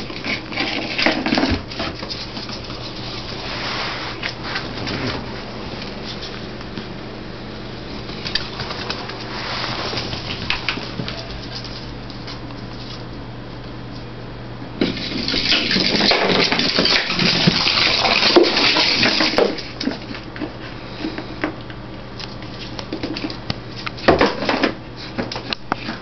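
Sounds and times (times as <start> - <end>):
puppy paws clicking on floor: 0.0 - 7.0, 7.9 - 13.2, 19.1 - 26.0.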